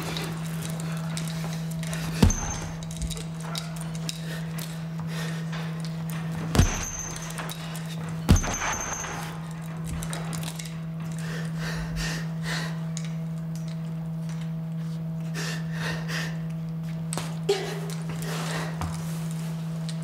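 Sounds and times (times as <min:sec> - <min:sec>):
steady low hum: 0:00.0 - 0:20.0
punches on heavy bag: 0:02.1 - 0:03.1, 0:06.4 - 0:07.5, 0:08.3 - 0:09.4
person breathing: 0:11.1 - 0:13.0, 0:15.2 - 0:16.5, 0:18.2 - 0:18.9.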